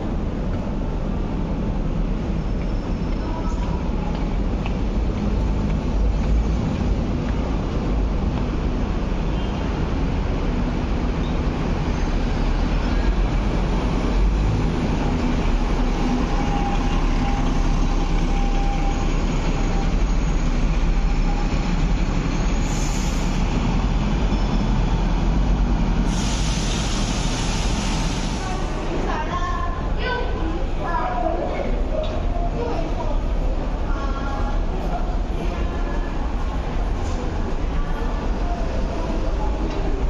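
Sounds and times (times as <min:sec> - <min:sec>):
train rumbling on tracks: 0:00.0 - 0:40.0.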